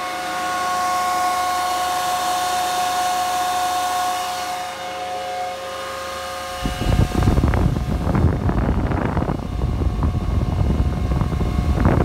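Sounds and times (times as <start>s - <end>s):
cooling fans whining: 0.0s - 12.0s
wind noise on microphone: 6.4s - 12.0s.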